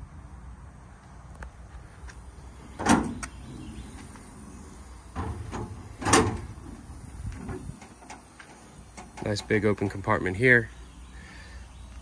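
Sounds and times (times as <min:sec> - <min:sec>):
truck door latch clack: 0:02.7 - 0:04.1, 0:05.1 - 0:09.5.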